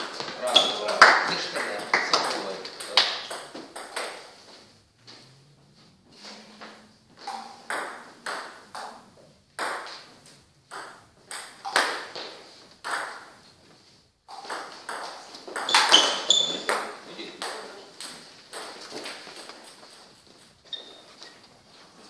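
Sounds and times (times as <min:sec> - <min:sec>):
table tennis ball hits: 0:00.0 - 0:04.4, 0:06.5 - 0:13.5, 0:14.2 - 0:19.9.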